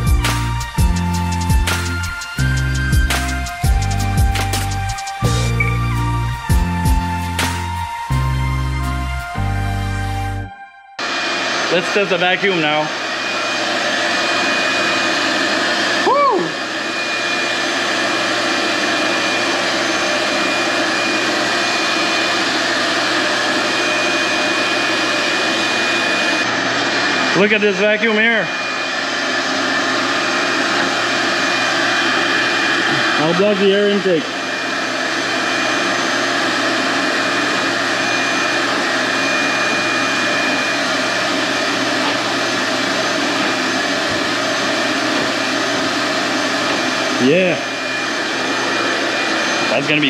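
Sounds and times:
shop vac running: 0.0s - 50.0s.

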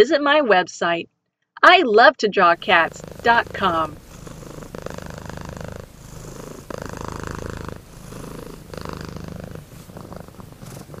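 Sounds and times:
cat purring: 2.4s - 11.0s.

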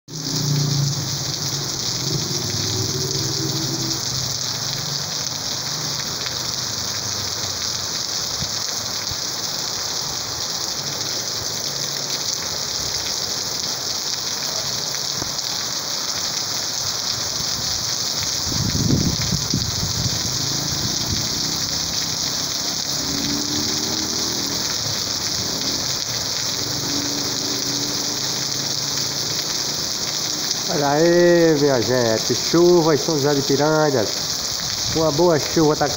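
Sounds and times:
heavy rain on street: 0.1s - 35.9s
water running: 20.1s - 34.2s.

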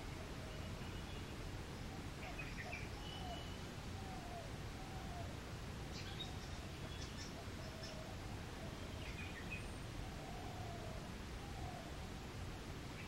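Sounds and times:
low drawn-out bird calls: 0.0s - 12.2s
steady low background noise: 0.0s - 13.0s.

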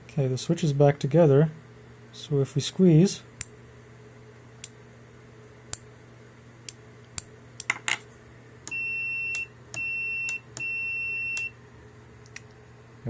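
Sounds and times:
multimeter continuity beep: 8.7s - 11.6s.

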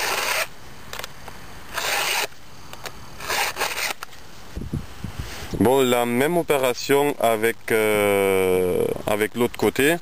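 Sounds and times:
file rasping on saw chain: 0.0s - 0.5s, 1.7s - 2.3s, 3.2s - 4.0s.

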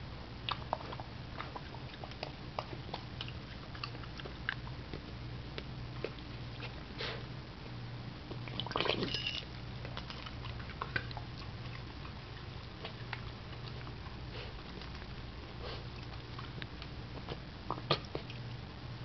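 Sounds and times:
faint low hum: 0.0s - 19.0s
puppy sniffing and mouthing: 10.0s - 16.6s.

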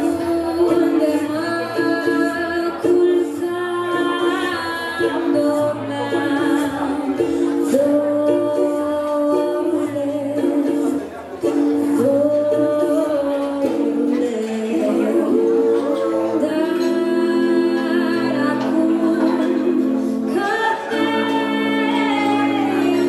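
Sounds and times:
a cappella group singing in harmony: 11.9s - 23.0s.

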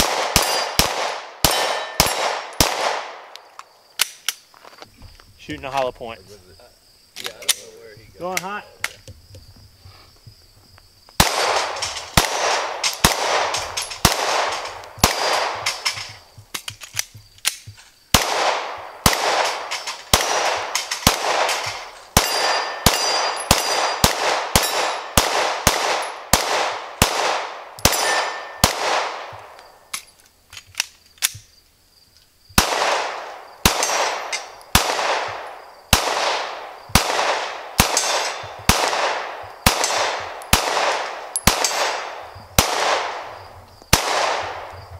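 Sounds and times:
pistol shots with echo: 0.0s - 3.3s, 11.2s - 16.2s, 17.5s - 29.6s, 32.6s - 44.8s.

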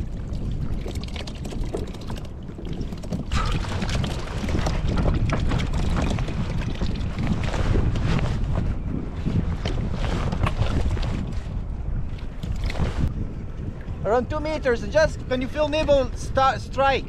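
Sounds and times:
water lapping against kayak hull: 0.0s - 13.2s
wind buffeting microphone: 0.0s - 17.0s.

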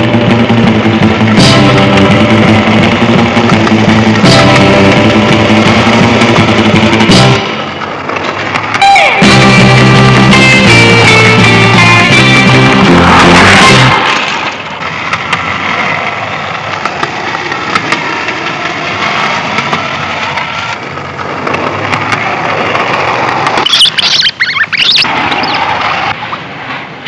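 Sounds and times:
rock music: 0.0s - 7.6s, 8.8s - 14.1s
skateboard wheels rolling on pavement: 0.0s - 27.0s
high wavering squeals: 23.6s - 26.4s.

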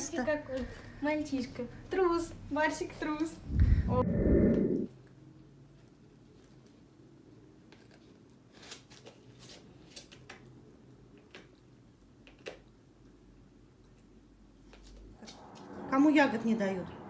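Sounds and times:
low room hum: 0.0s - 17.0s
puppy gnawing on a chew: 9.6s - 15.7s.

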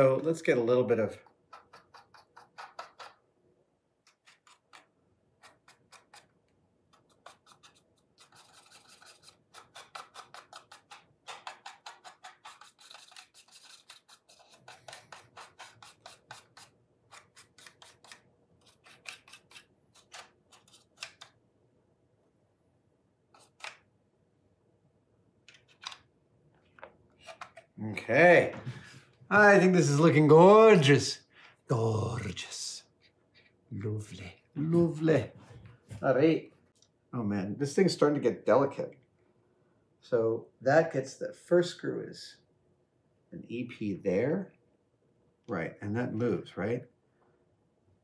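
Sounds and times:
paintbrush bristle strokes: 6.9s - 20.8s.

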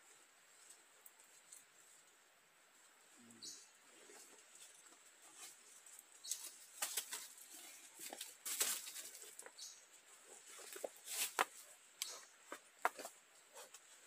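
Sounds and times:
feet shuffling on dry leaves: 6.3s - 9.4s, 10.4s - 11.7s.

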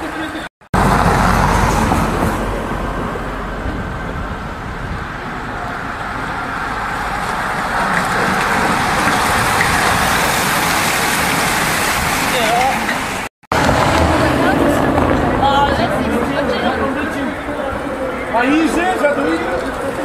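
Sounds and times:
tyres and freewheels on road: 0.0s - 20.0s
bicycles riding past: 4.2s - 12.6s, 13.5s - 20.0s.

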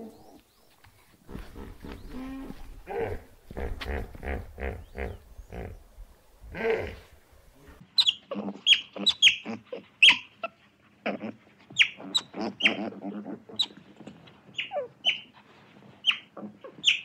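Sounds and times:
animal low grunts: 1.3s - 5.8s, 6.4s - 9.8s.

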